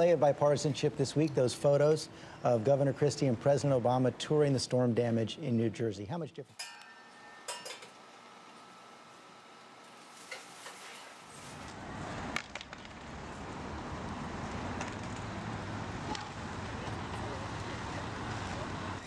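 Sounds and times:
low traffic rumble: 11.2s - 19.0s
city street noise: 11.3s - 19.0s.

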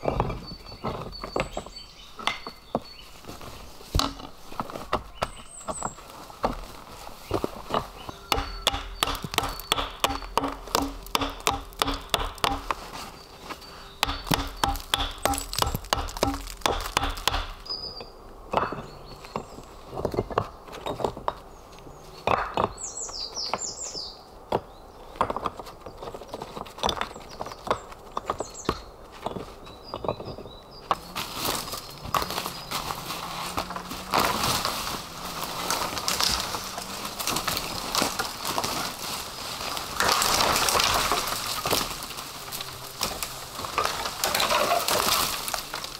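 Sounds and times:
bird chirping: 0.0s - 3.4s, 4.9s - 6.4s, 7.2s - 34.4s
footsteps in dry leaves: 2.9s - 17.8s, 31.0s - 45.9s
stones knocking together: 3.9s - 13.0s, 14.0s - 17.8s, 25.2s - 45.9s.

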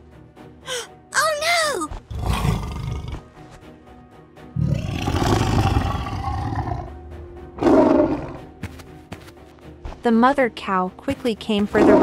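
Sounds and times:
background music: 0.0s - 12.0s
animated tiger roaring: 2.1s - 3.2s, 4.6s - 7.0s, 7.6s - 8.5s, 11.8s - 12.0s.

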